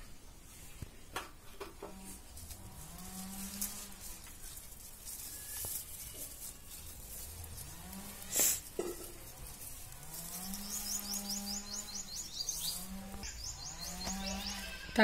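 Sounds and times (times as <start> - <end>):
stems snapping: 1.2 - 11.7
leaves rustling: 1.8 - 15.0.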